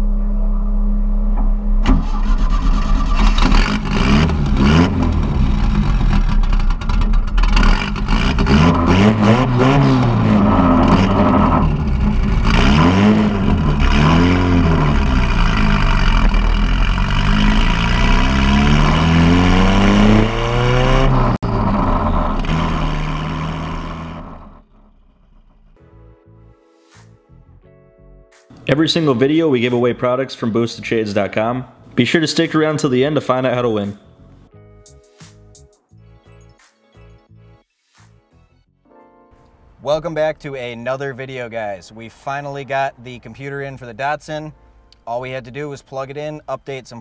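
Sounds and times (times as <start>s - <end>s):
car exhaust revving: 0.0s - 25.8s.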